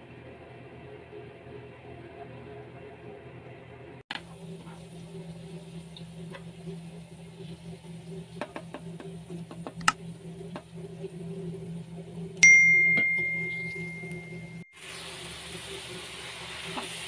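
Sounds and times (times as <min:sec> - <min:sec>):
garlic and onion frying in oil: 0:04.1 - 0:12.4, 0:14.7 - 0:17.0
bell ding: 0:12.4 - 0:14.7.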